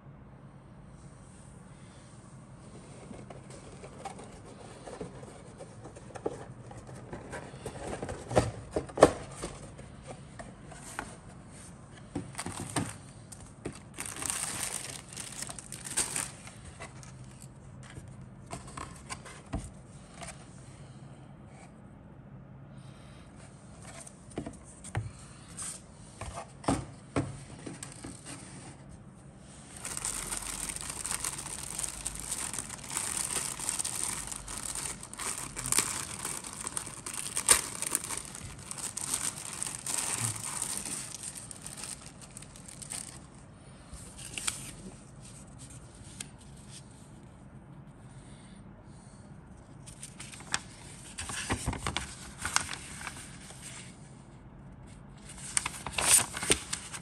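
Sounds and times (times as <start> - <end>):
paper rustling and crinkling: 2.7 - 20.4, 27.4 - 28.8, 29.5 - 43.4, 44.1 - 46.9, 49.8 - 54.0, 55.2 - 57.0.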